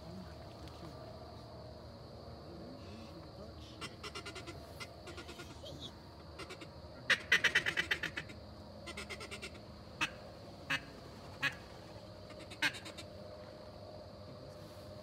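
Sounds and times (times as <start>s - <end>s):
duck quacking: 6.4s - 11.7s, 12.3s - 13.1s.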